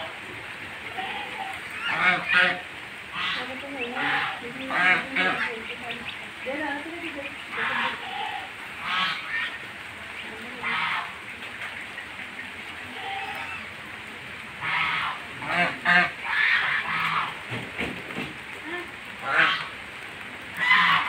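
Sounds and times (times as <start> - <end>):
geese honking: 0.8 - 13.7, 14.6 - 17.5, 19.2 - 19.8, 20.6 - 21.0.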